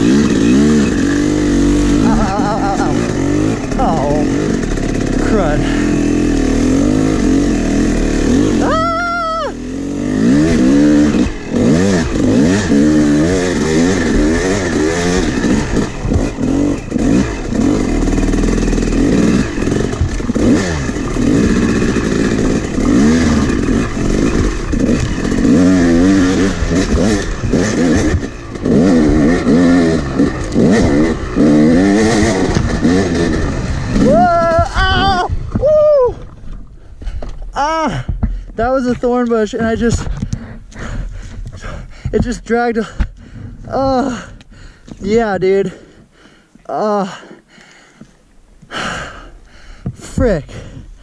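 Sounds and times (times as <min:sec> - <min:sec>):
dirt bike engine revving: 0:00.0 - 0:36.0, 0:38.6 - 0:46.0
bike knocks and rattles: 0:10.5 - 0:45.2, 0:49.8 - 0:51.0.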